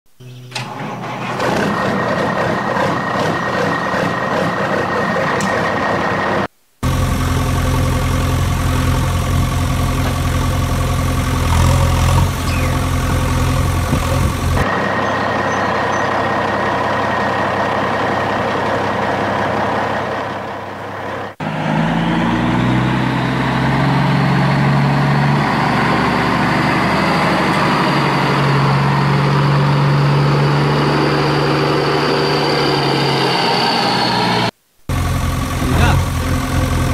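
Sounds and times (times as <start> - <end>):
truck engine idling: 0.5 - 36.9.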